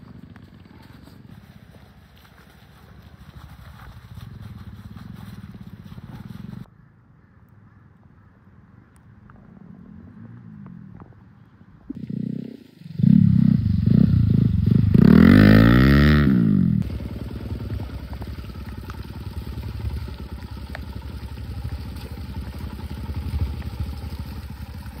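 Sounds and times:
motorcycle engine on dirt trail: 0.0 - 6.7, 9.1 - 25.0
motorcycle engine revving past: 9.3 - 25.0.

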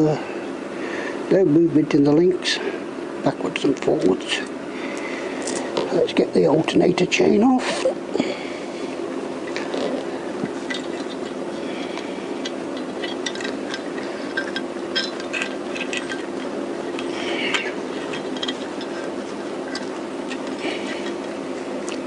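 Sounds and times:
steady low hum: 0.0 - 22.0
metallic clinks and rattles: 12.8 - 16.5, 17.5 - 21.2.

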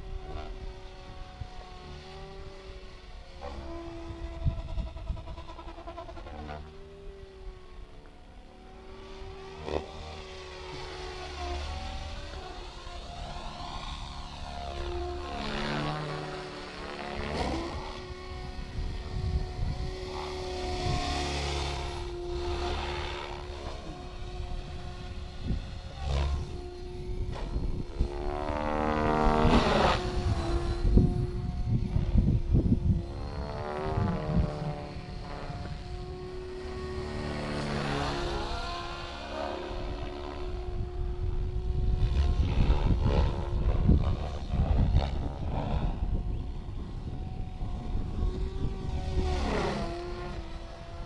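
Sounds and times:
wind on microphone: 0.0 - 7.7, 8.6 - 51.0
rc helicopter motor whine: 0.0 - 51.0
rotor swish passing by: 0.0 - 51.0.

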